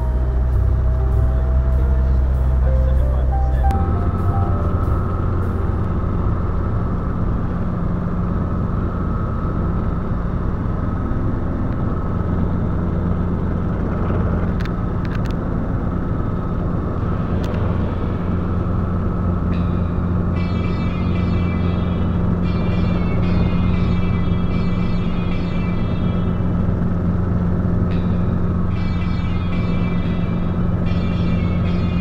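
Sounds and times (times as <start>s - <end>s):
helicopter engine and rotor: 0.0s - 32.0s.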